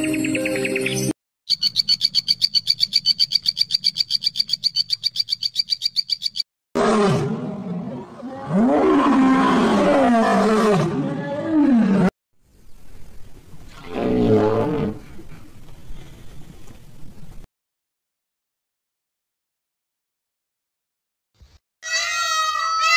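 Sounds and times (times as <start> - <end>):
lion growling: 6.8 - 12.1.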